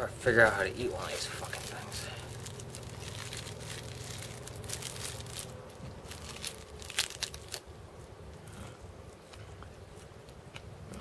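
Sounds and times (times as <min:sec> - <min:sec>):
plastic wrapper crinkling: 0:00.5 - 0:07.7.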